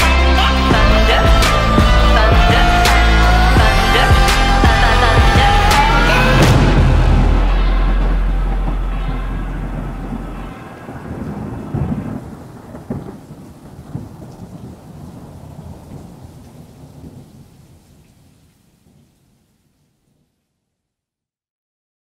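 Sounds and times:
rain falling: 0.0s - 20.2s
rumbling thunder: 0.7s - 18.0s.

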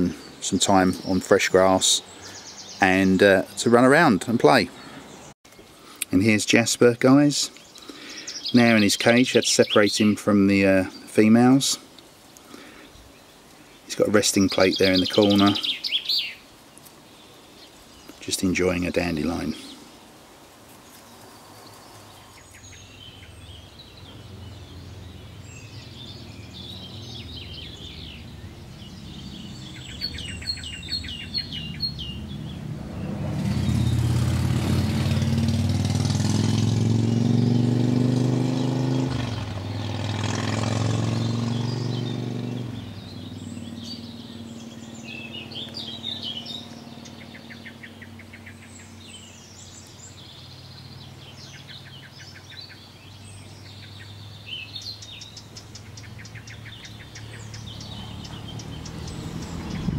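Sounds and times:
small birds chirping: 0.0s - 59.9s
motor vehicle engine: 21.4s - 52.0s, 53.2s - 59.9s.

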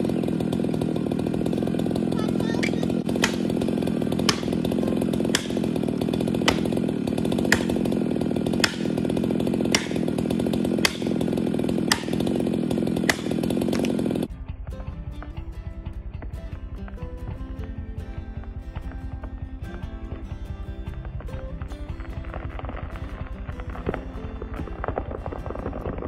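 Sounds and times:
chainsaw cutting wood: 0.0s - 14.3s, 17.6s - 26.0s
sharp ticking: 0.3s - 14.3s
quiet music: 14.3s - 26.0s.

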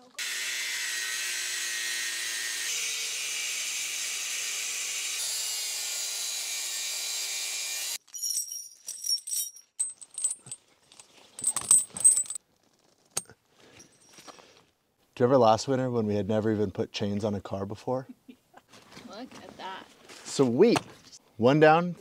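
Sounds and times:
power tool cutting steel chain: 0.1s - 8.6s
chain links clinking: 8.0s - 12.4s, 13.2s - 14.3s.

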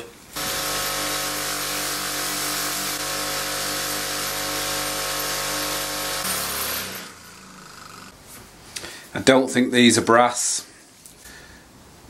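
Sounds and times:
bench grinder motor hum: 0.4s - 8.2s.

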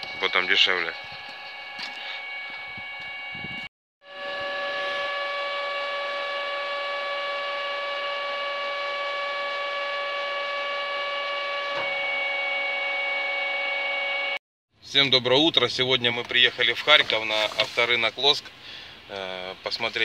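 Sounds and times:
gas pump humming: 0.0s - 14.4s.

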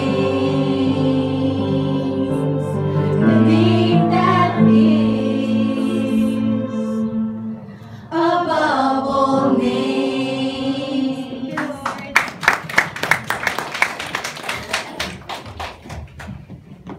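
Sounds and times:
women singing in harmony: 0.0s - 11.9s
hand clapping: 11.6s - 16.6s.

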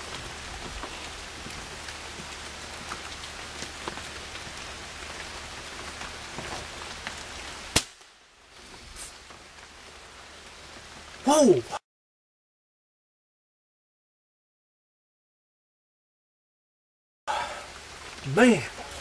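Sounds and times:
rain hiss: 0.0s - 11.8s, 17.3s - 19.0s
gunshot: 7.7s - 8.1s.

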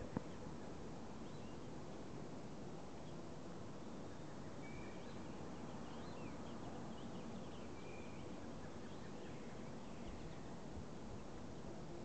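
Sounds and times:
low background noise: 0.0s - 12.0s.

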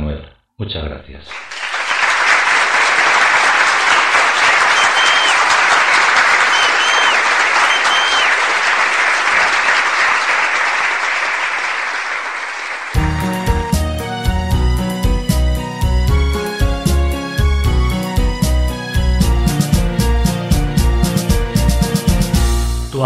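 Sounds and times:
audience applauding: 1.3s - 13.1s
music: 13.0s - 23.0s.

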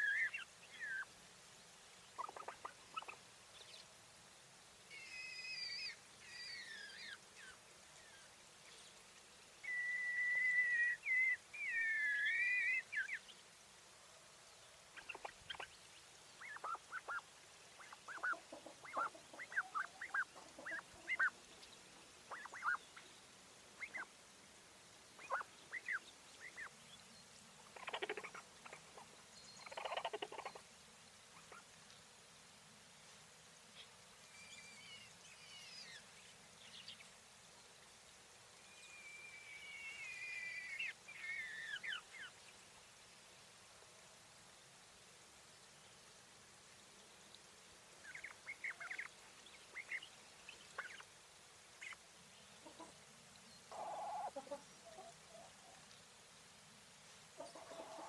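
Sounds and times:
quail warbling calls: 0.0s - 1.1s, 2.2s - 3.2s, 15.0s - 15.7s, 16.4s - 17.2s, 17.8s - 21.4s, 22.3s - 22.8s, 25.2s - 26.7s, 27.7s - 30.6s, 53.7s - 55.5s, 57.4s - 58.0s
quail short quick chirps: 2.2s - 3.2s, 16.4s - 17.2s, 17.8s - 21.4s, 22.3s - 22.8s, 27.8s - 29.0s, 29.6s - 30.6s.

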